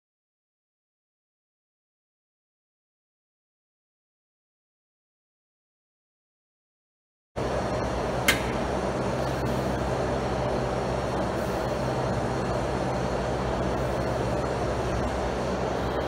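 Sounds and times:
low hum: 0:07.4 - 0:16.0
sharp click: 0:08.3 - 0:08.6.

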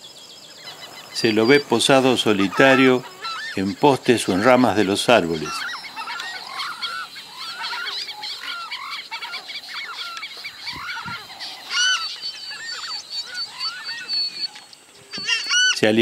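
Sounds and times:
birds calling: 0:00.0 - 0:16.0.

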